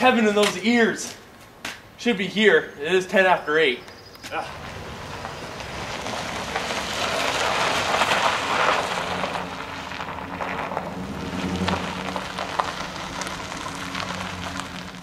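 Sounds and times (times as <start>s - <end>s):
tyres crunching on gravel: 0.0s - 3.4s, 4.2s - 15.0s
truck engine running low: 4.4s - 15.0s.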